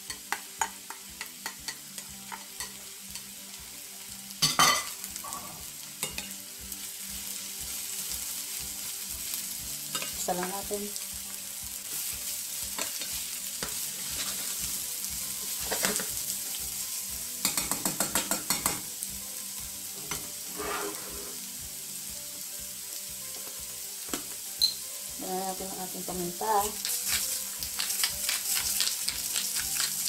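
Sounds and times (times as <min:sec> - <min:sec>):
vegetables sizzling in oil: 0:00.0 - 0:30.0
spatula scraping pan: 0:12.8 - 0:14.7, 0:20.0 - 0:21.5.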